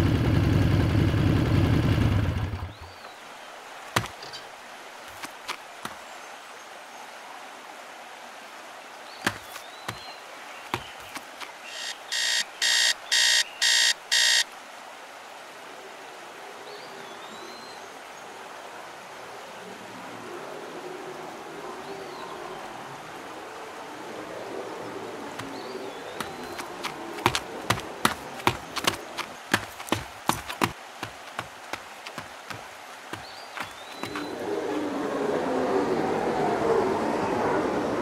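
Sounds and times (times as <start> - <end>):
steady outdoor hiss: 0.0 - 38.0
electronic alarm beeping: 11.7 - 14.5.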